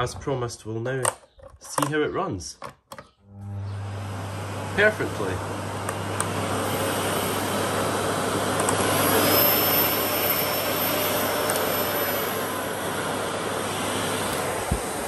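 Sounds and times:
vacuum cleaner running: 3.3s - 15.0s.

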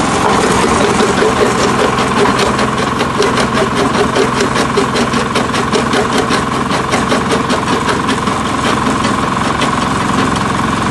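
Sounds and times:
stone crushing clatter: 0.0s - 10.4s
diesel engine drone: 0.0s - 10.9s
gravel pouring: 0.0s - 10.9s.

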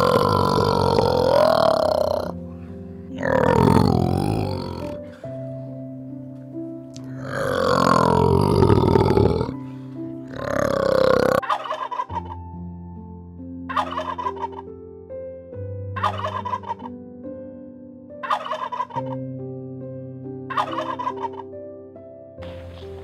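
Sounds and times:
soft background music: 0.0s - 23.0s
turkey gobbling: 11.4s - 12.4s, 13.7s - 14.6s, 16.0s - 16.9s, 18.2s - 19.2s, 20.5s - 21.4s.

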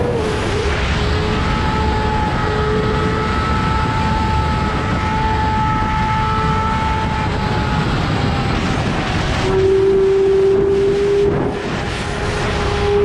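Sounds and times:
wind rush: 0.0s - 13.0s.

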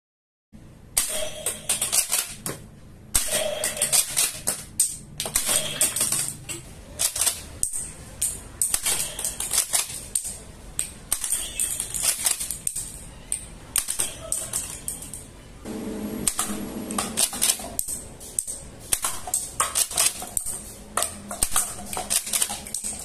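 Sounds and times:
plastic parts clicking and rattling: 3.2s - 15.4s, 16.9s - 23.0s.

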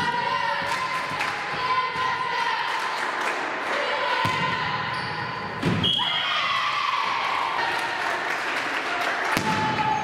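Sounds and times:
spectators clapping and cheering: 0.6s - 1.7s, 2.4s - 4.2s, 6.4s - 10.0s.

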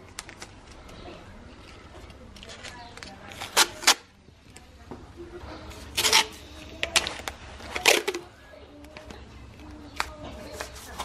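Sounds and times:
masking tape ripping off roll: 3.0s - 4.1s, 5.8s - 8.3s.

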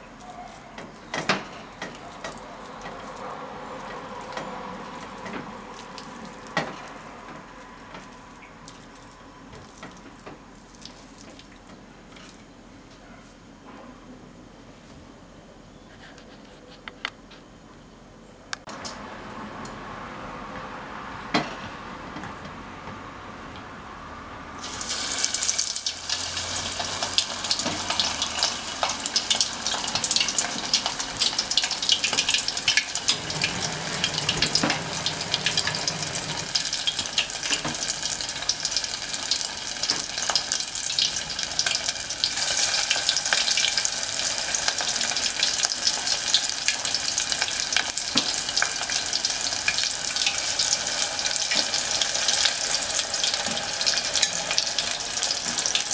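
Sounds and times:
meat deep-frying in oil: 0.0s - 11.8s, 24.6s - 55.9s.

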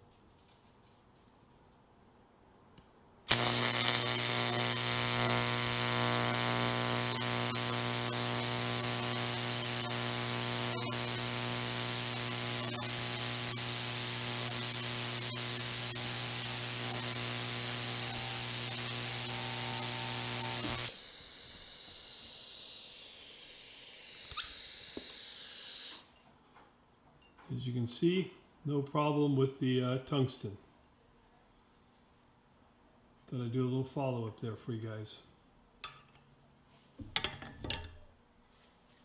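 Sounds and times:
mains-like hum: 3.3s - 26.1s
welding arc buzzing hiss: 3.3s - 26.1s.

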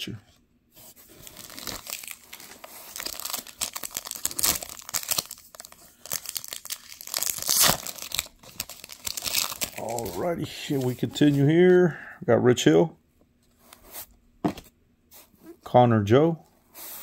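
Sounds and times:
foil wrapper crinkling and tearing: 1.2s - 10.2s.

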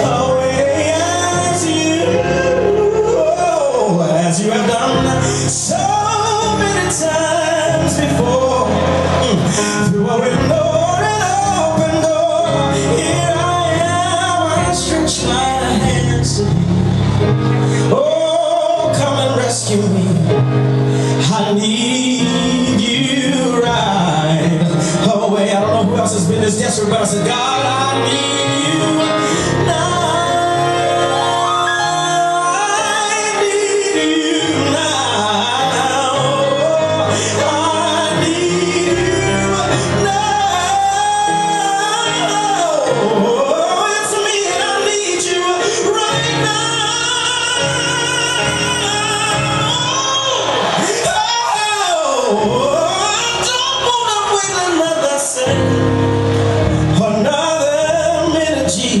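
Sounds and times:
band with steady bass: 0.0s - 59.0s
person singing gospel: 0.0s - 59.0s.

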